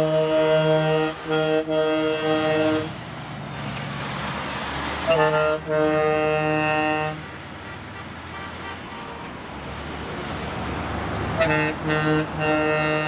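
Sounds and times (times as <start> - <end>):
truck air horn blasts: 0.0 - 3.0, 5.0 - 9.5, 11.3 - 13.0
vehicles driving past: 0.0 - 13.0.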